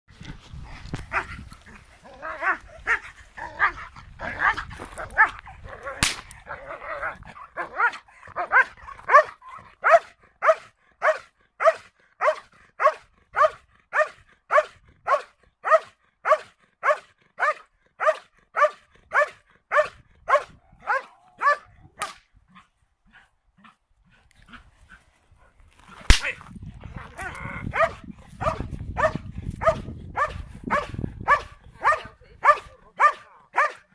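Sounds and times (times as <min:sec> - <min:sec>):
large dog barking: 0:02.3 - 0:21.8, 0:27.0 - 0:33.9.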